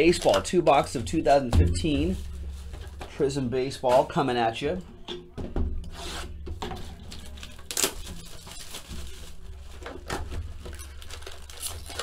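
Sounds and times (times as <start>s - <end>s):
cardboard rustling and scraping: 5.8s - 11.5s.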